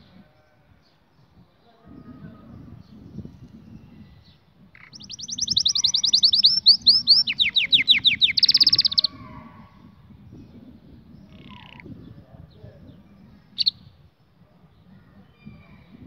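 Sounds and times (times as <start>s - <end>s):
canary singing trills: 2.0s - 9.8s, 10.4s - 14.0s.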